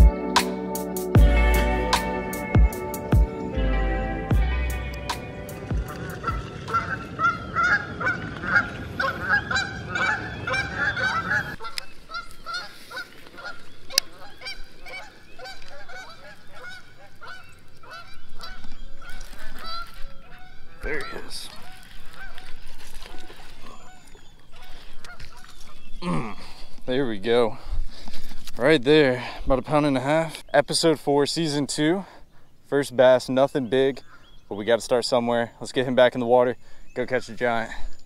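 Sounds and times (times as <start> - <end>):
geese honking: 0.0 - 25.7.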